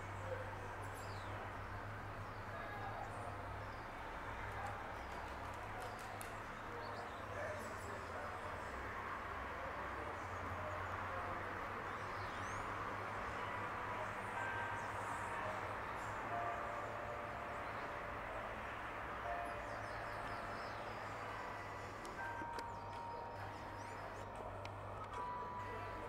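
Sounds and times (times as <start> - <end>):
birds chirping: 11.7 - 26.0.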